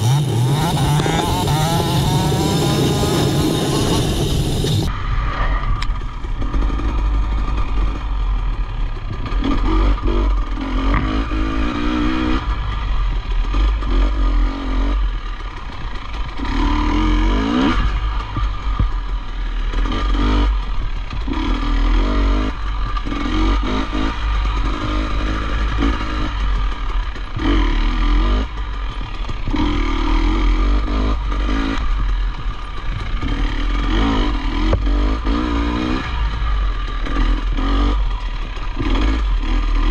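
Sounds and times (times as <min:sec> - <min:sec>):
heavy low rumble: 0:00.0 - 0:19.5
motorcycle engine revving: 0:00.0 - 0:39.9.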